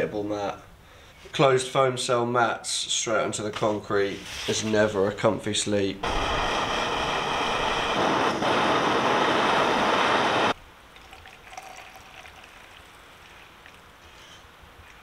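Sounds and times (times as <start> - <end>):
camping stove burner hissing: 6.0 - 10.6
liquid pouring into metal mug: 11.0 - 13.9.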